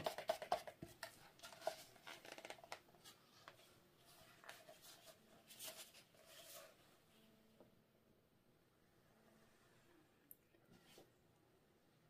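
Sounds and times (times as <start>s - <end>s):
plastic bottle crackling: 0.0s - 2.9s.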